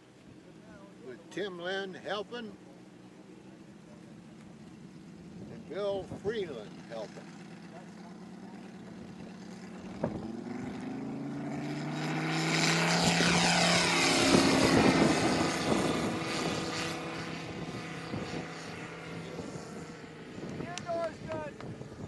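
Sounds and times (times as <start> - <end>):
model plane engine revving: 4.3 - 22.0.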